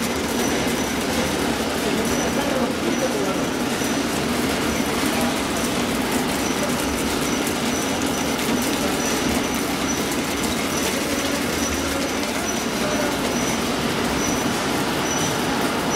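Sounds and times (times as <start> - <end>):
ice machine droning: 0.0 - 15.9.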